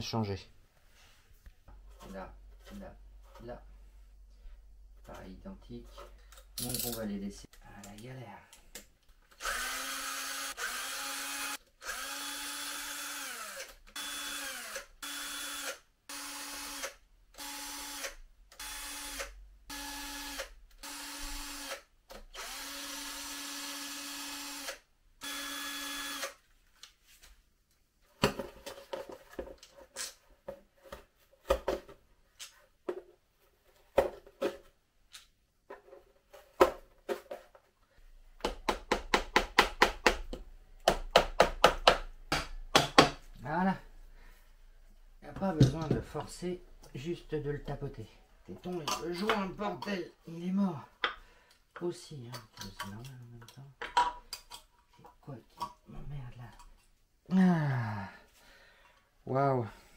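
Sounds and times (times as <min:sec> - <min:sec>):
drill-driver motor bursts: 0:09.4 - 0:26.4.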